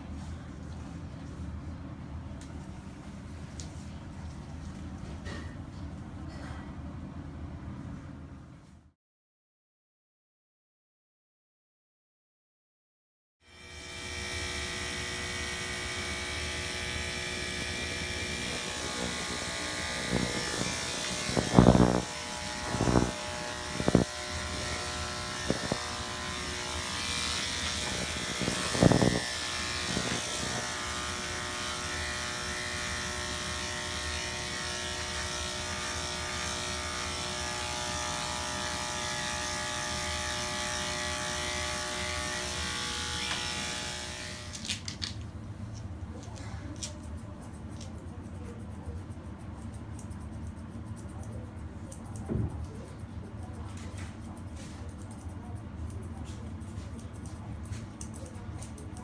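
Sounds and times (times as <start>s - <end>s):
electric clipper buzzing: 13.4s - 44.8s.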